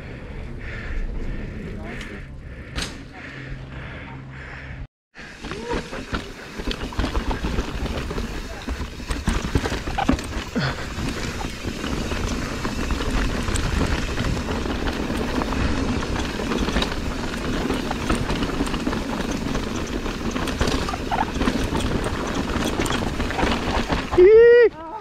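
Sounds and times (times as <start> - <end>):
low rumble: 0.0 - 9.0
bike knocking and rattling: 5.2 - 25.0
tyres crunching over stones: 5.2 - 25.0.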